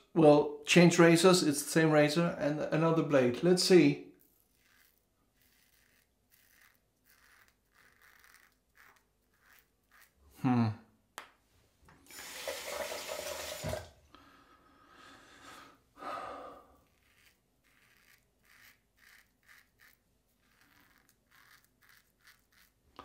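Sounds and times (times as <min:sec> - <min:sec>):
razor scraping stubble: 0:03.6 - 0:10.4, 0:16.7 - 0:23.0
water running: 0:11.9 - 0:14.1.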